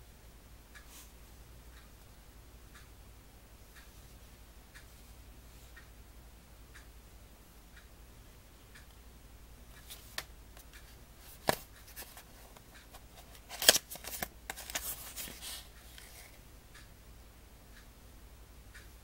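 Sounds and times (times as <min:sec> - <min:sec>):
papery rustling: 0:11.2 - 0:16.4.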